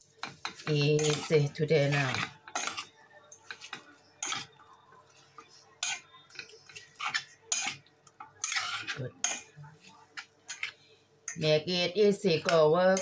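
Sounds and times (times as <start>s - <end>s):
fork scraping a steel saucepan: 0.2s - 4.6s, 5.8s - 7.8s, 8.4s - 9.6s, 10.2s - 10.8s.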